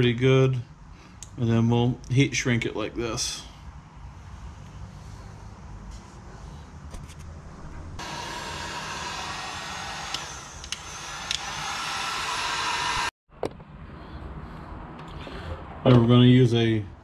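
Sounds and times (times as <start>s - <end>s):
heat gun blowing: 8.0s - 13.2s.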